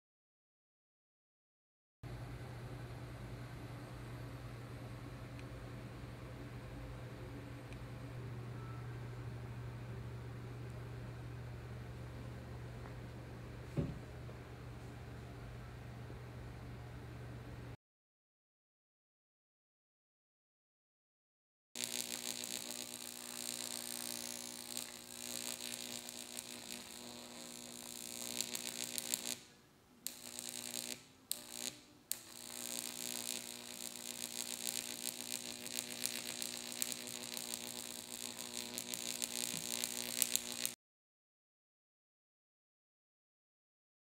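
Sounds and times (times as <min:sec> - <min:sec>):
electric arc crackling: 0:21.8 - 0:40.8
electrical buzz: 0:21.8 - 0:40.8.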